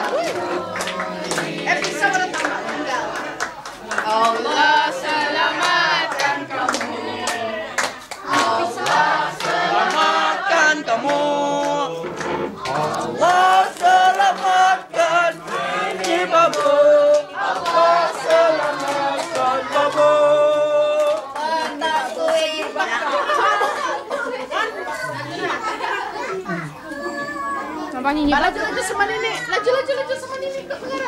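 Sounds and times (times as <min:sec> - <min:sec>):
hand clapping: 0:00.0 - 0:10.2, 0:11.0 - 0:22.8
group of people singing: 0:00.0 - 0:26.7.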